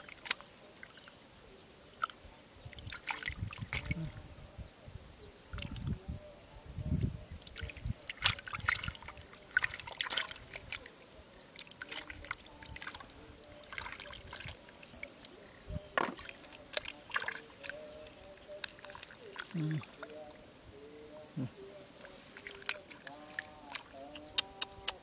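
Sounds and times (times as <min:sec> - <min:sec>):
hands squelching through wet mud: 0:00.0 - 0:01.2, 0:02.8 - 0:04.1, 0:07.4 - 0:15.4, 0:16.0 - 0:20.2, 0:21.9 - 0:25.0
water splashing: 0:00.0 - 0:04.5, 0:07.2 - 0:25.0
trickling water: 0:00.0 - 0:04.8, 0:05.4 - 0:25.0.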